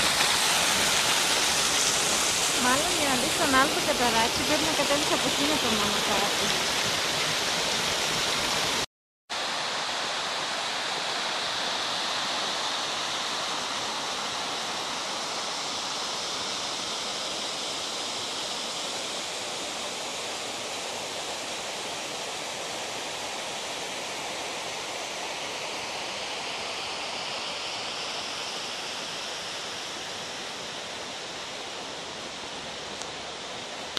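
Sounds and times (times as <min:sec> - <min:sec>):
waterfall roaring: 0:00.0 - 0:08.8.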